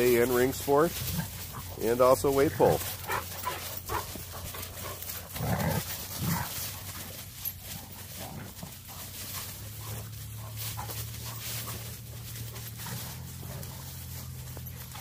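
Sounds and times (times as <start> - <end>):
dogs growling: 0.0 - 15.0
paws rustling dry leaves: 0.0 - 15.0.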